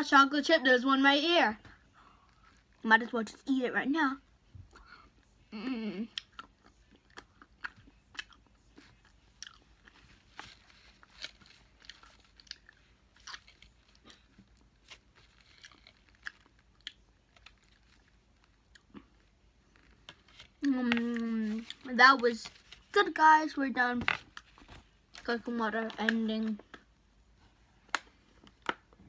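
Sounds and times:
child chewing with crunches: 0:01.7 - 0:03.4, 0:04.6 - 0:23.0.

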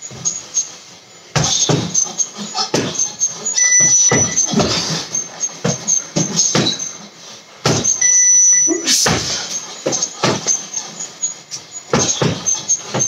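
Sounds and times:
punches thudding on a punching bag: 0:01.3 - 0:02.0, 0:07.6 - 0:08.0
short high electronic beep: 0:03.6 - 0:04.4, 0:08.0 - 0:09.2.

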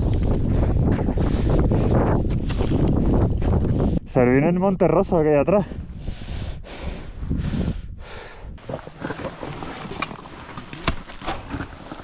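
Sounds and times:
wind buffeting microphone: 0:00.0 - 0:12.0
climbing gear scraping on rock: 0:08.6 - 0:12.0.

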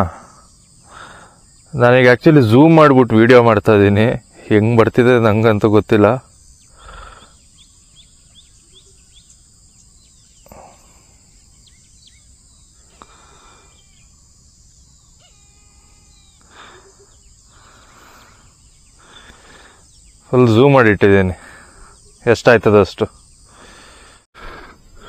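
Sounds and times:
high-pitched insect drone: 0:00.0 - 0:25.0
bird calls and chirps: 0:06.3 - 0:20.4.

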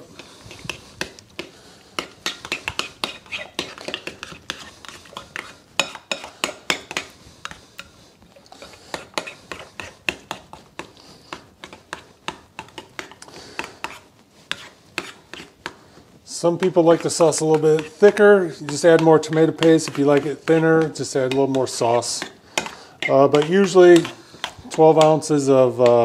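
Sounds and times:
spoon clinking and scraping bowl: 0:02.0 - 0:10.9, 0:16.6 - 0:26.0.

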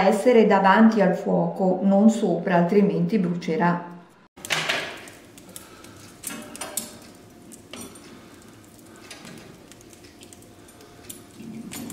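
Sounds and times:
wood fire burning: 0:04.4 - 0:11.9
metallic clicks and clinks: 0:05.9 - 0:08.4.

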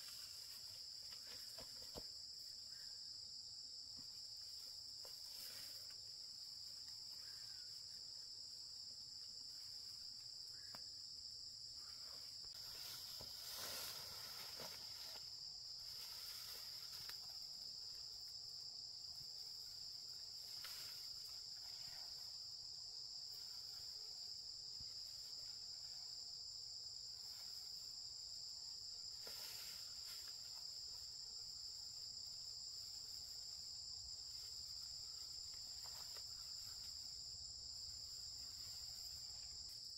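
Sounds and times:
high-pitched insect chorus: 0:00.0 - 0:39.9.

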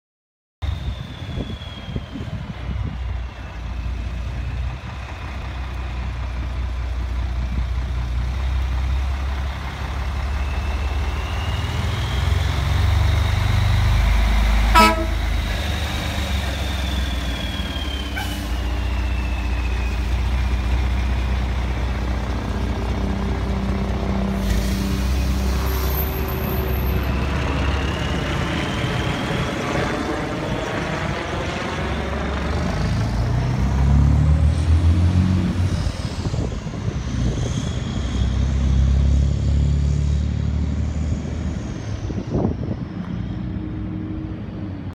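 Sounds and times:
diesel engine driving past: 0:00.6 - 0:44.9
short horn toot: 0:14.7 - 0:15.3.

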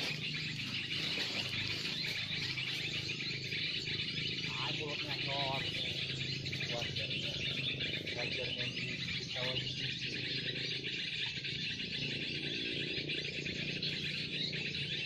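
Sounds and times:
high-pitched chirping chorus: 0:00.0 - 0:15.0
faint low voices: 0:00.6 - 0:10.9.

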